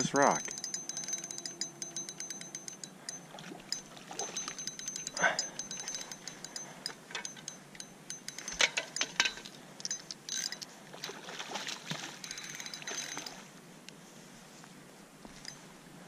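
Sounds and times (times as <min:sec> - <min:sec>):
spinning reel clicking: 0:00.2 - 0:10.7, 0:12.2 - 0:13.4
fish splashing at the surface: 0:10.9 - 0:12.2.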